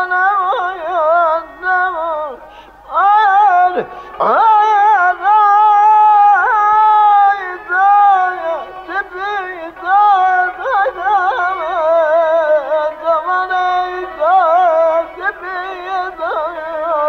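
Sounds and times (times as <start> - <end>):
man singing with trills: 0.0 - 17.0.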